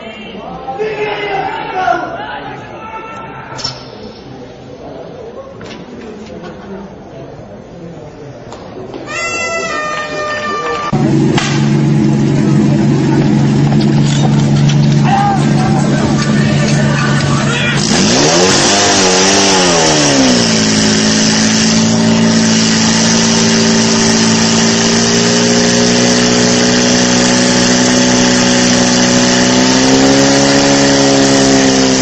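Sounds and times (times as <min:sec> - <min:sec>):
pump engine revving: 0:10.9 - 0:32.0.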